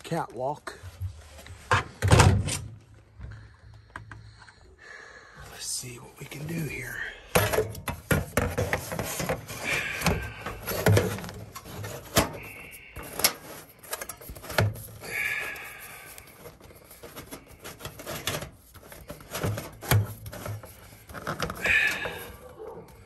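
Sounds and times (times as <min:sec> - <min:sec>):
metal scraping squeaks: 0:08.8 - 0:23.0.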